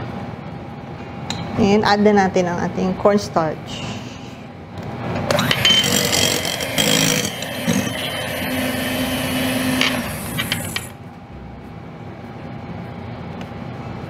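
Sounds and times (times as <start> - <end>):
electric hand mixer whipping: 5.3 - 11.0.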